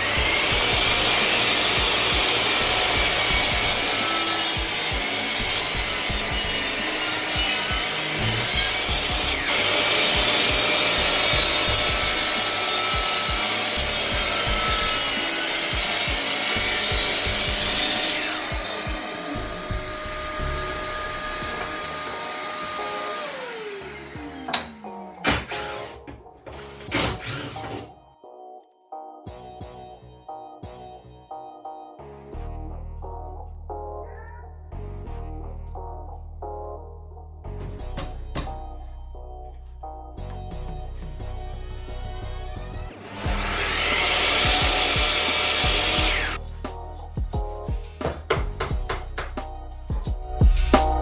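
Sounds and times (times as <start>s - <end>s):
saw blade winding down: 0.0s - 26.0s, 42.7s - 46.4s
mitre saw cutting wood: 0.0s - 27.9s, 42.6s - 46.4s.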